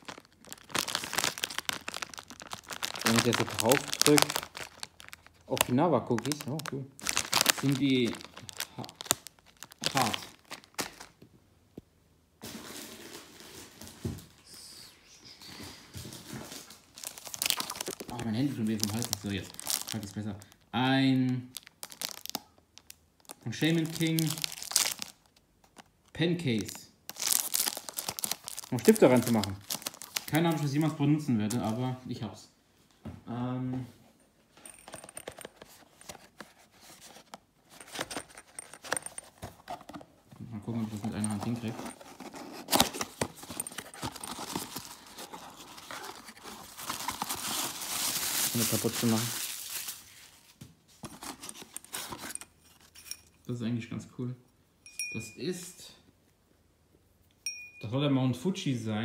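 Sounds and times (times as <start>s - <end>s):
plastic packet crinkling: 0.0s - 11.2s, 16.4s - 20.7s, 21.4s - 31.9s, 40.6s - 52.4s
cardboard box clicks and rustles: 40.9s - 47.8s
wind chime tinkle: 54.8s - 55.8s, 57.4s - 58.0s.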